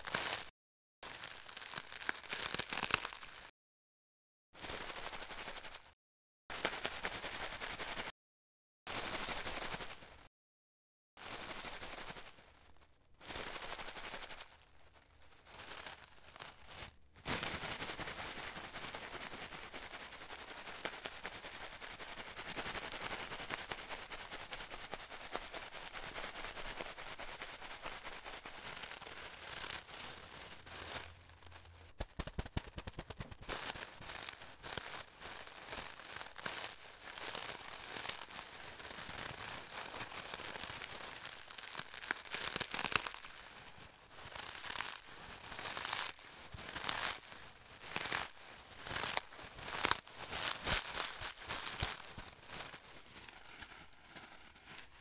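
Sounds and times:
charcoal crackling in bag: 0.0s - 3.5s, 26.6s - 55.0s.

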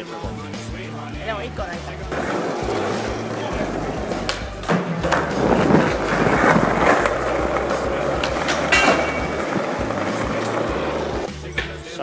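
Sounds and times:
skateboard wheels rolling on concrete: 0.0s - 11.3s
skateboard clacks: 2.0s - 11.3s.

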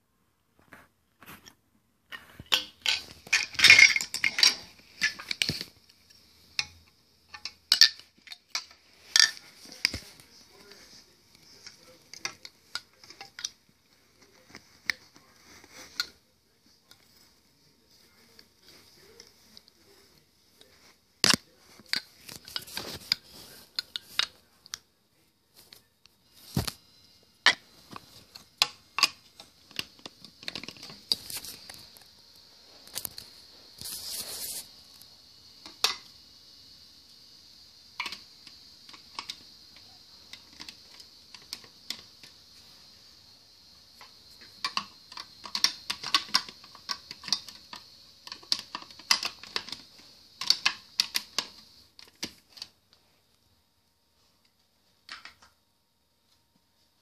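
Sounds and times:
faint high hiss: 0.0s - 57.0s
plastic toy pieces clicking: 2.5s - 5.7s, 44.0s - 52.6s
scraping rustle: 32.7s - 34.8s.

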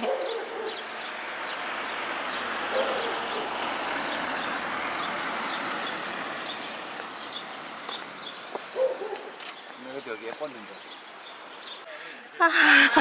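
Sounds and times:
small birds chirping: 0.0s - 11.9s
van driving past: 0.9s - 8.5s.

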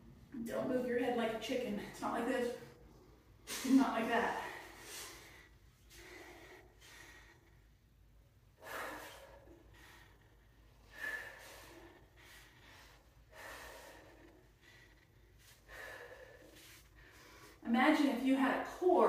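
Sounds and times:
short sharp breaths: 8.5s - 17.6s.

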